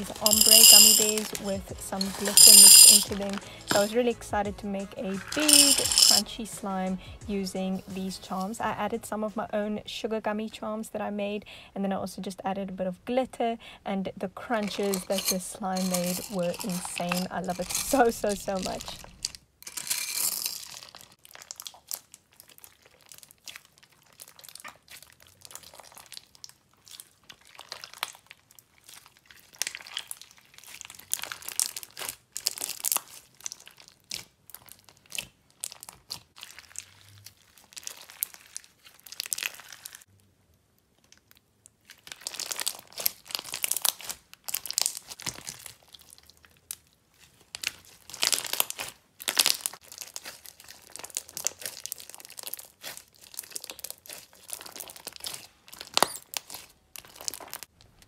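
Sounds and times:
slime crunching and crackling: 20.6s - 58.0s.

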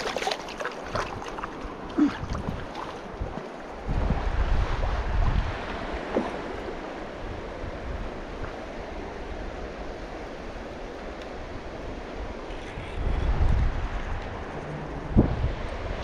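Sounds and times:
river water rushing over stones: 0.0s - 4.0s
wind buffeting microphone: 0.0s - 9.7s, 11.4s - 16.0s.

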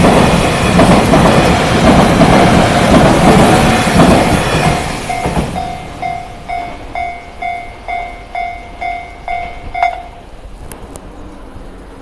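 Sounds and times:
passing train noise: 0.0s - 12.0s
level crossing warning bell: 4.6s - 10.4s.

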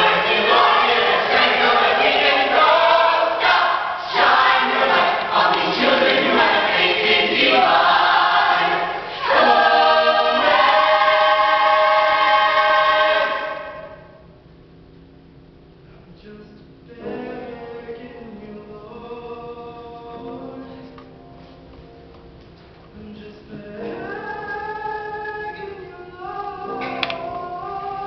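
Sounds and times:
choir singing: 0.0s - 14.2s.

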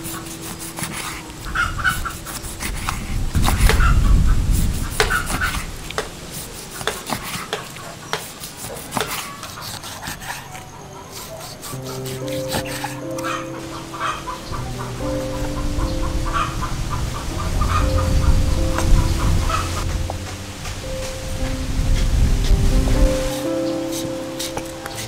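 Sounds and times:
low rumble: 14.5s - 23.3s.

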